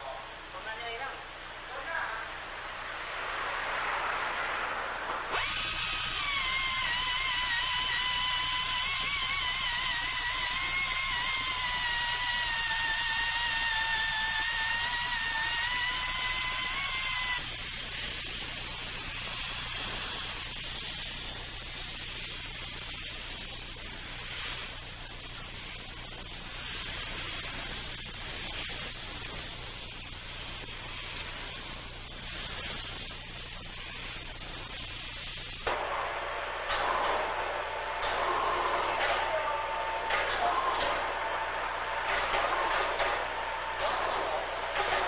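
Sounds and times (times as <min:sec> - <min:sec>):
air grinder cutting stone: 0:05.3 - 0:35.6.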